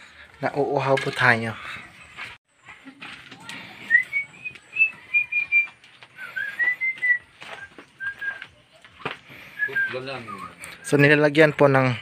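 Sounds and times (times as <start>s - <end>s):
person whistling a tune: 3.8s - 8.5s, 9.6s - 10.9s.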